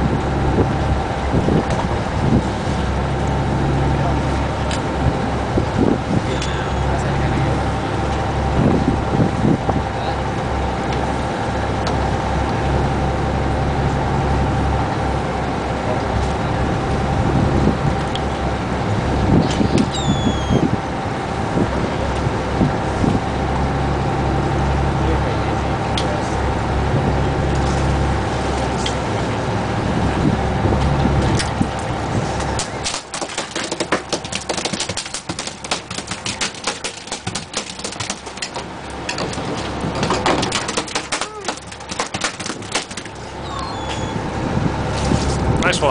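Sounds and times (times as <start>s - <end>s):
boat engine droning: 0.0s - 45.9s
fish tail slapping on deck: 32.4s - 43.2s.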